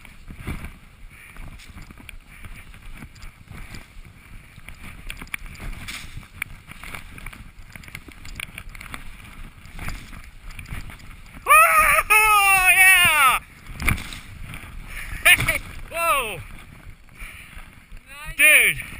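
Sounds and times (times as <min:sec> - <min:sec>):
skis rushing through snow: 0:00.0 - 0:18.9
small clicks and knocks: 0:04.6 - 0:11.1.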